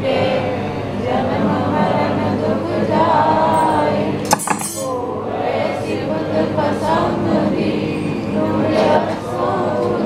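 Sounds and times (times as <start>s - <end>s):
group singing a hymn: 0.0s - 10.0s
metallic clink: 4.3s - 5.0s.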